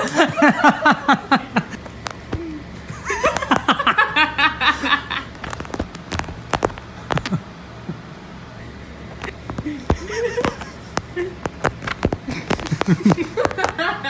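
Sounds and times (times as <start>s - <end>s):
person laughing hard: 2.4s - 5.3s, 9.2s - 14.0s.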